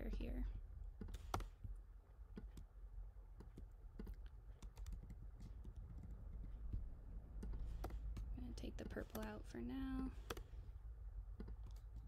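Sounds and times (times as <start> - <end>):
faint low hum: 0.0 - 12.0
keyboard and mouse clicks: 1.0 - 2.7, 3.4 - 9.4, 10.2 - 10.5, 11.4 - 12.0.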